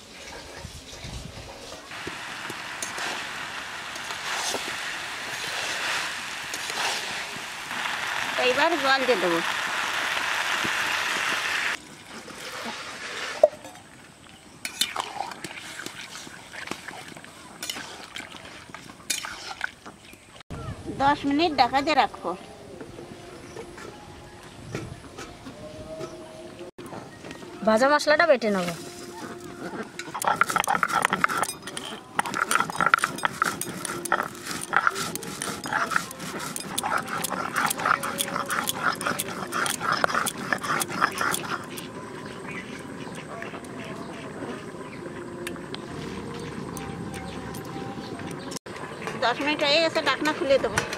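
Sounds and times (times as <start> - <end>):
water hissing in hot wok: 1.9 - 13.4
stone roller grinding spices: 29.2 - 43.8.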